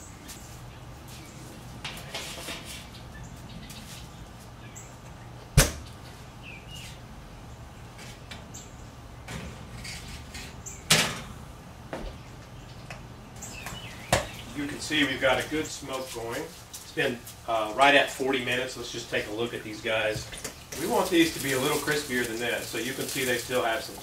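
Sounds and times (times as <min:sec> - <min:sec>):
smoker door clunking: 0:09.2 - 0:12.2.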